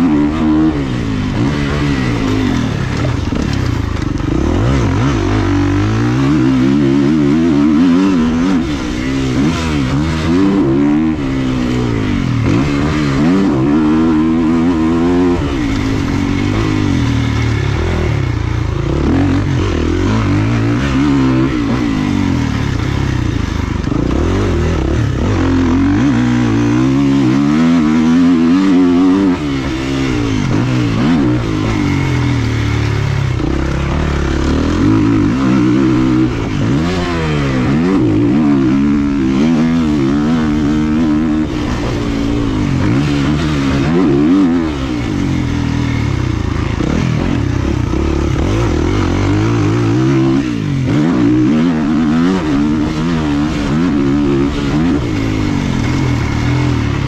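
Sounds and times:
motocross bike engine revving: 0.0s - 57.0s.

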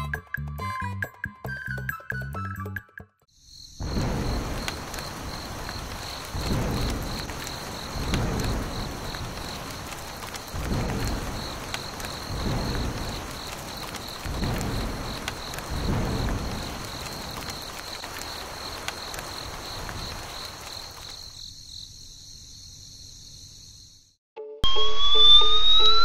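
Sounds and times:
insects chirping: 3.3s - 24.2s
steady hiss: 3.4s - 21.4s.

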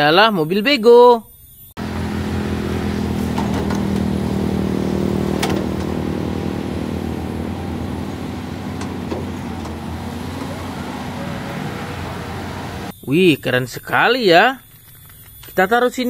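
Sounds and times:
excavator diesel engine running: 1.8s - 12.9s
light knocks: 2.3s - 12.9s.

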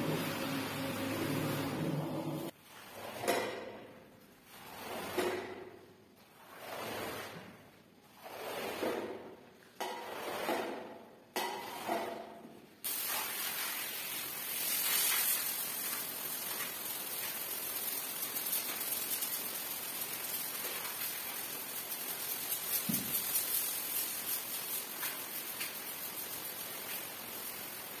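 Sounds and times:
squeegee swishing water on floor: 0.0s - 28.0s
steady hiss: 12.8s - 28.0s.

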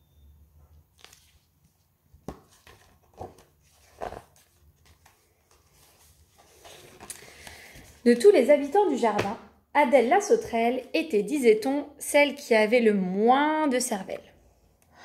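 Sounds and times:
book pages rustling: 0.7s - 8.8s.

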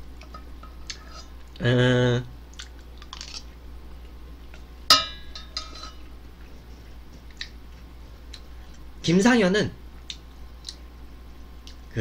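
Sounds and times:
faint eating clicks: 2.5s - 4.7s, 7.1s - 7.6s, 10.0s - 10.8s
utensil clinking on metal pot: 4.9s - 6.0s.

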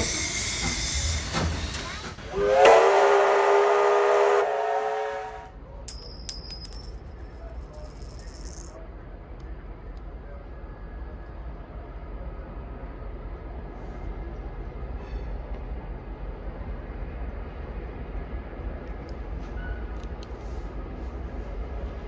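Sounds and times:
steam locomotive hissing: 0.0s - 5.4s
steam whistle: 2.2s - 5.6s
high ringing with clicks: 5.9s - 7.0s.

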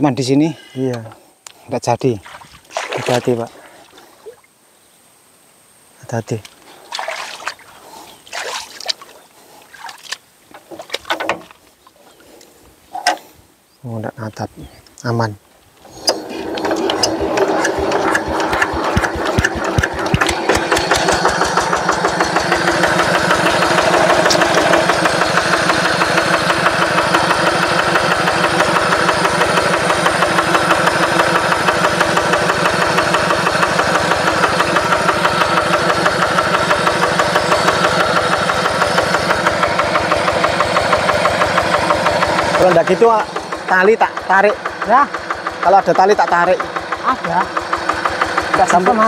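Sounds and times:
diesel engine knocking: 16.4s - 49.0s.

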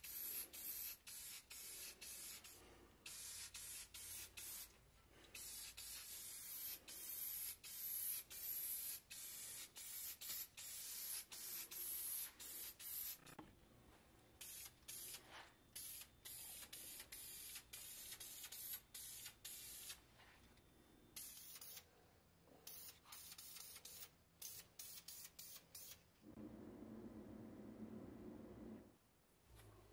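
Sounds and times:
spray paint hissing: 0.0s - 13.4s, 14.4s - 20.0s, 21.2s - 21.9s, 22.6s - 26.0s.

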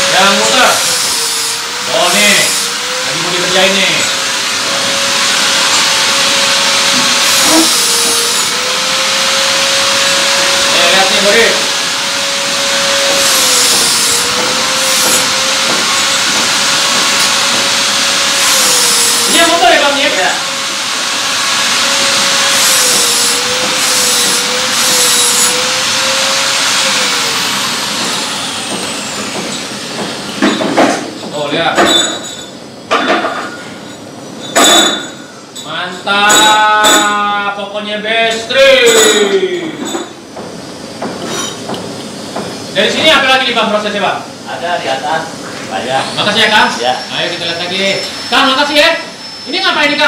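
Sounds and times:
steady machine noise: 0.0s - 32.9s, 38.8s - 50.0s
loud even machine hiss: 13.0s - 25.6s.

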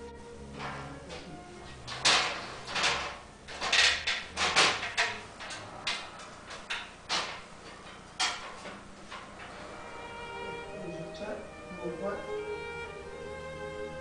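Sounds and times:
plastic panels knocking and clattering: 0.6s - 9.5s.

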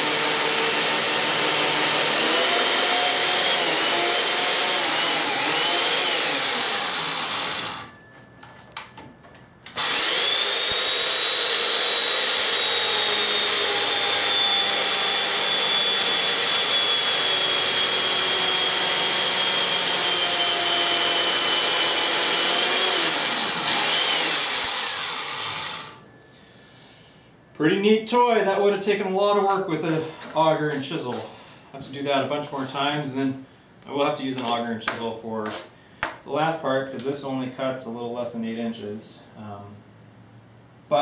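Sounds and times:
chainsaw mortiser cutting wood: 0.0s - 8.0s, 9.7s - 26.0s.

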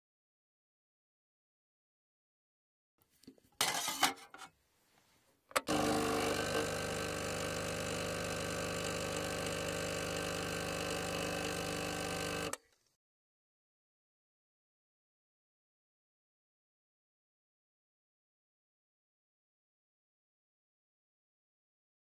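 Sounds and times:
coffee machine humming: 5.6s - 12.6s
coffee pouring into mug: 5.7s - 12.5s.

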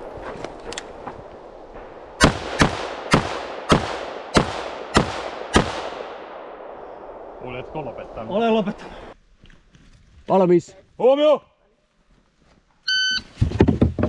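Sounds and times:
gunshot echo: 1.8s - 7.5s
rifle shots: 2.2s - 7.3s.

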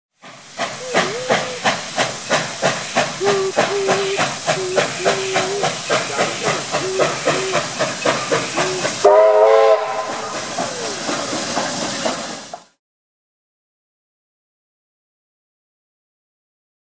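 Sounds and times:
hissing steam: 0.2s - 12.8s
steam locomotive exhaust chuffing: 0.2s - 12.8s
steam whistle blast: 0.8s - 2.2s, 3.2s - 11.0s.

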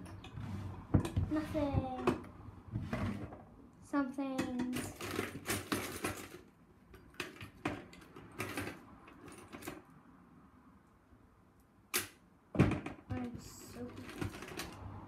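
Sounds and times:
craft supplies rustling and clattering: 0.0s - 3.5s, 4.4s - 9.9s, 12.6s - 15.0s.

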